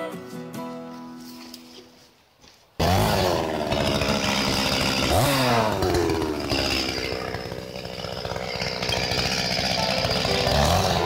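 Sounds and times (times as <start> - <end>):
chainsaw idling: 2.8 - 11.0.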